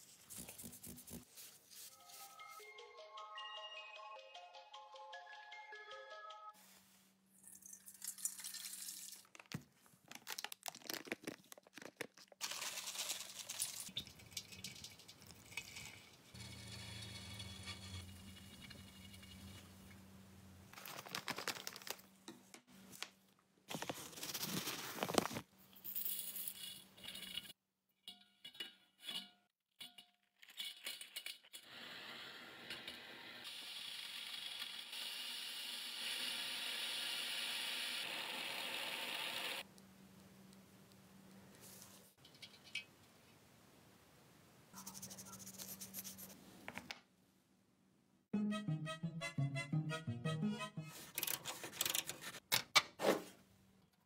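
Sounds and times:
liquid pouring into steel bowl: 7.4 - 9.3.

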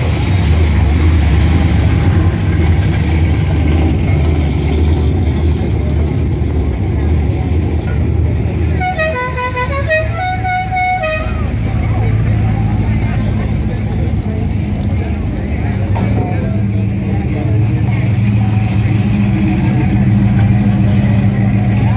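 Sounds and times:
car engine and exhaust rumble: 0.0 - 21.9
musical car horn tune: 8.8 - 11.5.

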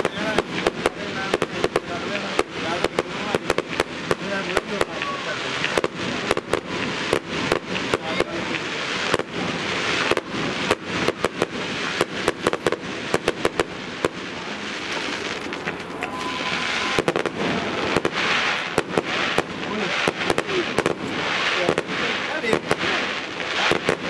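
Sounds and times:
distant fireworks popping and cracking: 0.0 - 24.0.

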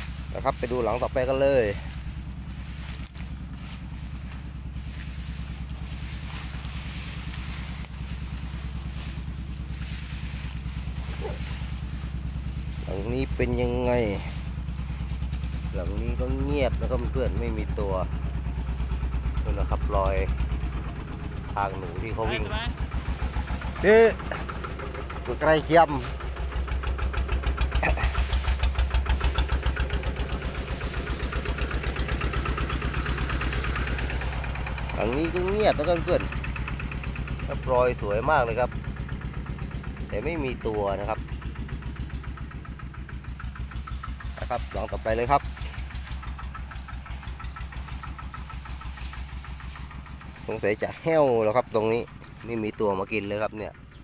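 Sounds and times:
motor running with fast pulse: 0.0 - 52.3
tall grass rustling: 0.0 - 53.5
small engine idling: 0.0 - 54.0.

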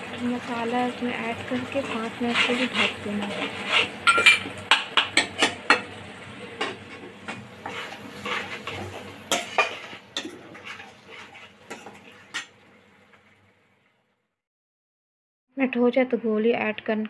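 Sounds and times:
spoon stirring and scraping in pan: 0.2 - 12.6.

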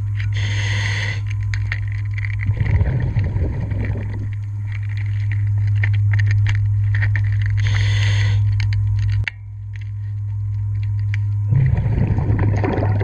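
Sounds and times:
low underwater hum: 0.0 - 13.0
underwater bubbling: 2.4 - 4.7, 11.5 - 13.0.

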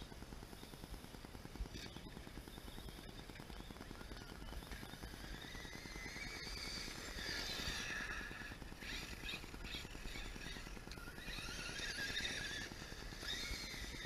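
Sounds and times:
rc car motor whining: 0.0 - 14.0.

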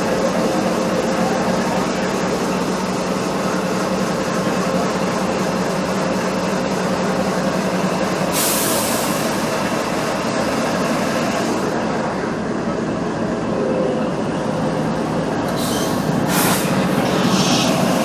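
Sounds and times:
locomotive engine hum: 0.0 - 18.0
rail noise: 0.0 - 18.0
rushing wind: 14.2 - 18.0.

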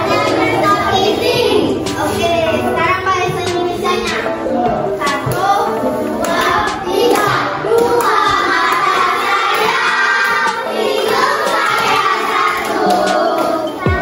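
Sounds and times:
children singing together: 0.0 - 14.0
children clapping along: 5.0 - 5.6, 6.2 - 14.0.

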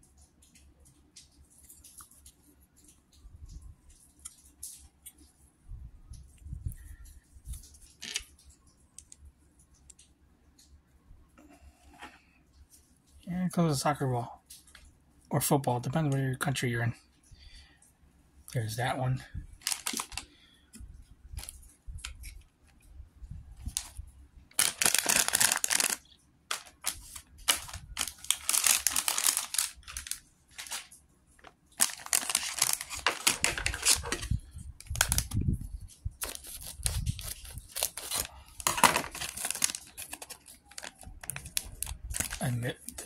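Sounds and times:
packaging crinkling: 7.5 - 8.4, 19.6 - 20.5, 21.3 - 22.5, 23.6 - 35.4, 36.2 - 43.0
plastic bag tearing open: 19.6 - 20.2, 24.6 - 30.9, 31.7 - 35.4, 36.2 - 43.0.

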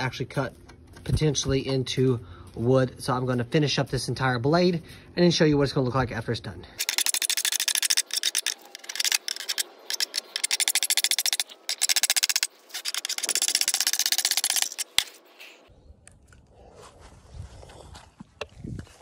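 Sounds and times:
metal file rasping on saw teeth: 6.8 - 15.6.

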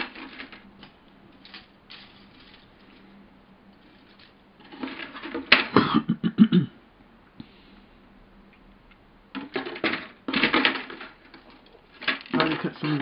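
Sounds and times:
plastic sprues clattering in cardboard box: 0.0 - 3.0, 3.8 - 5.8, 9.4 - 13.0.

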